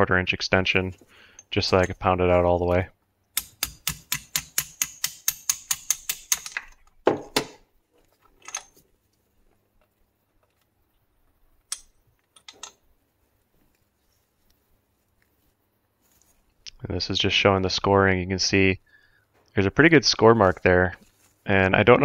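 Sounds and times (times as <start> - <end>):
hammer tapping on metal: 3.4 - 6.6.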